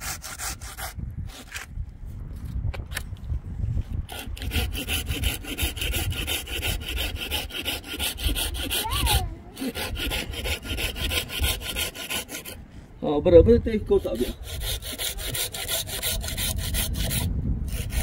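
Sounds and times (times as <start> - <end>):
rapid even rasping: 4.0 - 12.6, 13.7 - 18.0.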